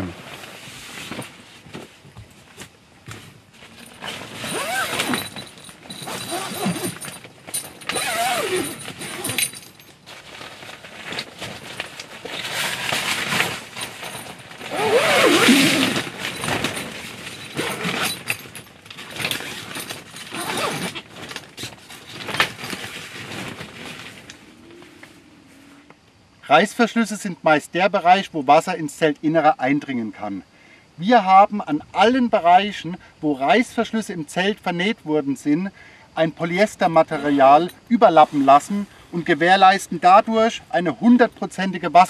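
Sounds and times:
tent fabric rustling: 0.0 - 25.8.

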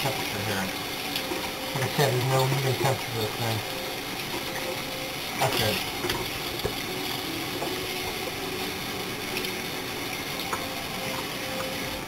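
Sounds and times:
tap running into sink: 5.4 - 6.8.

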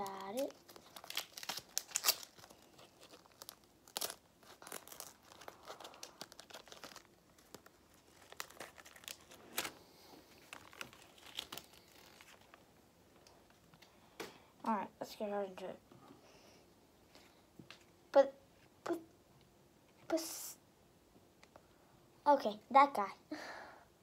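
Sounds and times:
plastic wrapper crinkling: 0.0 - 13.8.

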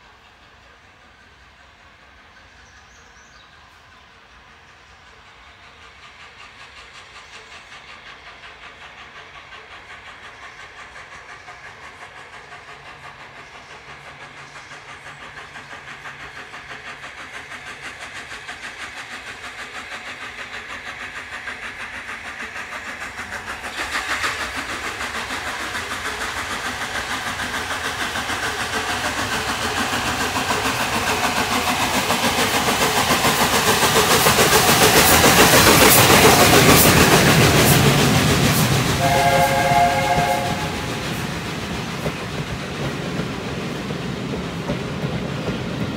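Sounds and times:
steam locomotive chuffing: 0.0 - 45.9.

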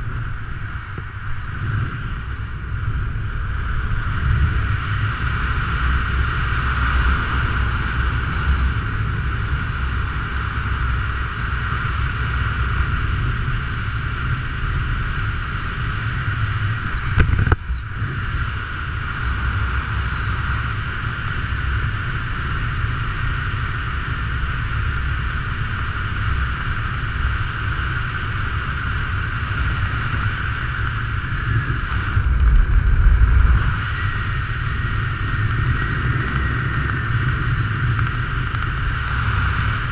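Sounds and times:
wind rushing over microphone: 0.0 - 39.9
wind buffeting: 28.6 - 39.9.

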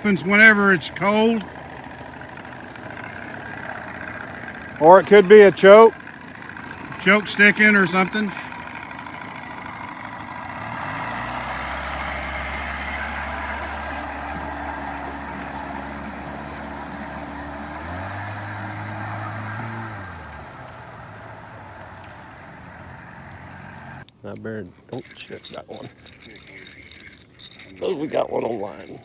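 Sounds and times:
outboard motor running: 0.0 - 24.0, 25.0 - 29.0.

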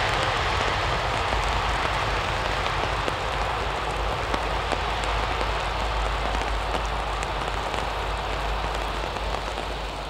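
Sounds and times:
rain hissing: 0.0 - 10.0.

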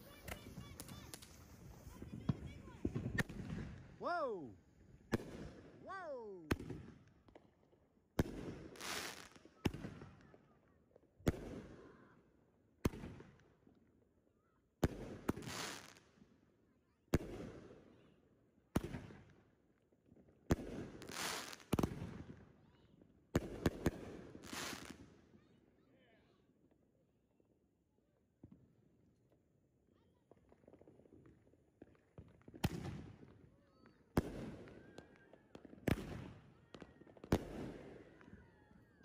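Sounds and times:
firework cracks with rumble: 0.0 - 3.9.

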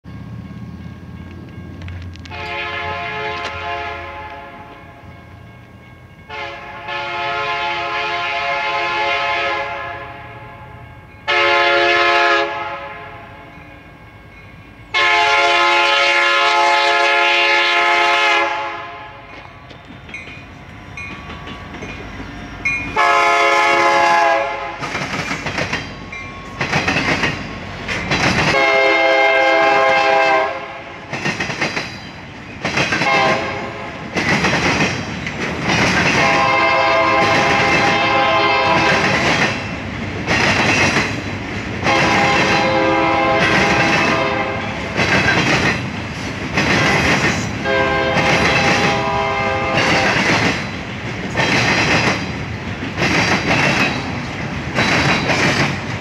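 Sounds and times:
locomotive air horn blasts: 2.2 - 5.0, 6.3 - 13.6, 14.9 - 19.4, 22.9 - 24.8, 28.5 - 30.9, 33.0 - 33.9, 36.2 - 39.0, 41.8 - 44.8, 47.6 - 50.2
train wheels clacking over rail joints: 19.3 - 23.3, 24.1 - 30.4, 31.0 - 56.0.

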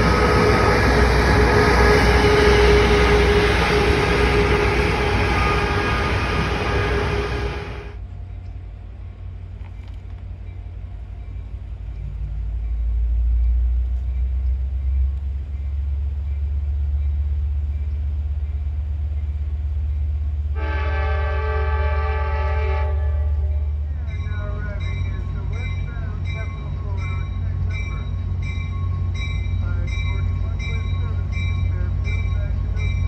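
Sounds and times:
train horn blast: 0.0 - 8.0, 20.5 - 23.8.

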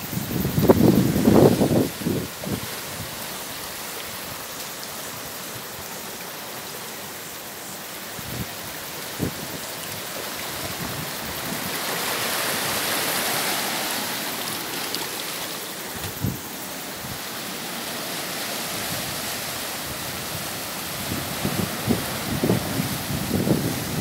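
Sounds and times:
small waves washing among rocks: 9.0 - 24.0.

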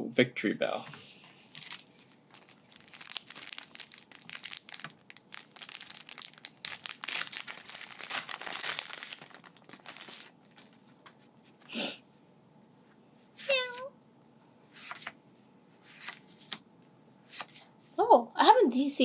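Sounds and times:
foil wrapper crinkling and tearing: 1.5 - 10.8.

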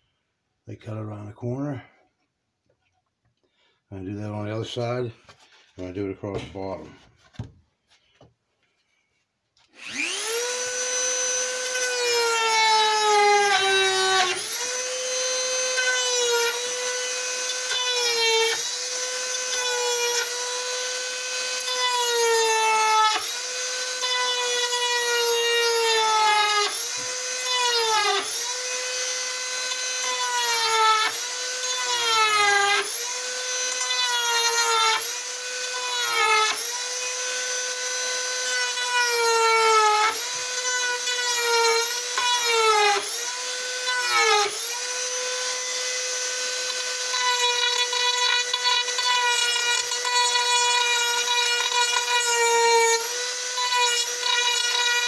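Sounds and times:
rotary carving tool whining: 9.6 - 55.0.

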